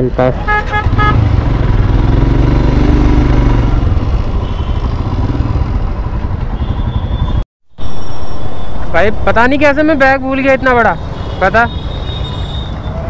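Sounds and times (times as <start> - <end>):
motorcycle engine low rumble: 0.1 - 7.4.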